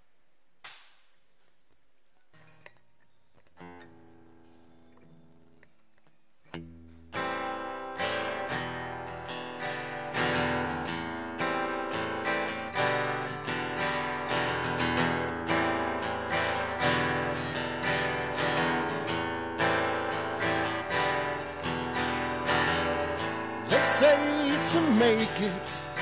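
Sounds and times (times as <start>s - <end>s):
acoustic guitar strumming: 6.5s - 26.0s
man singing: 23.6s - 26.0s.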